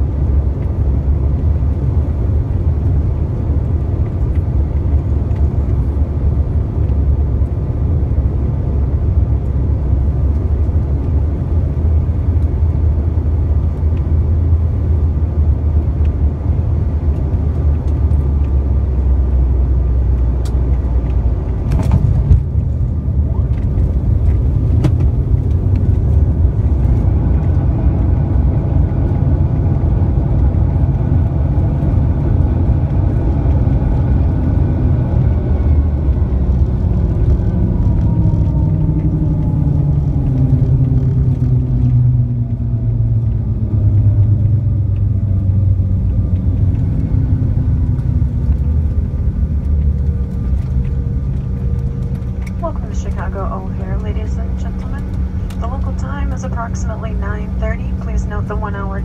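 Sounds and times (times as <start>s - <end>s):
jet engines and wheels rumbling: 0.0s - 59.0s
jet engine whine falling in pitch: 22.5s - 59.0s.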